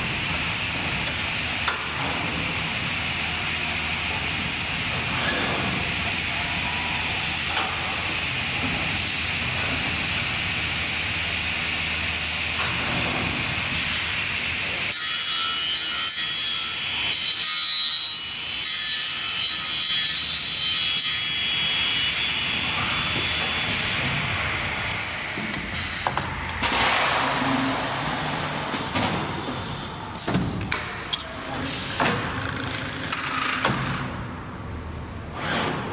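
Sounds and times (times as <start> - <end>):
machine hum: 21.4 - 35.3.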